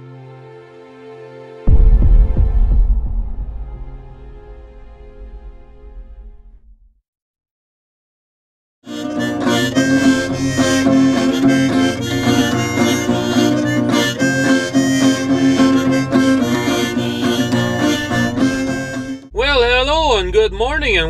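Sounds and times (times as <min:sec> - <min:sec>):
harmonica playing: 0:08.9 - 0:19.3
acoustic guitar playing: 0:08.9 - 0:19.4.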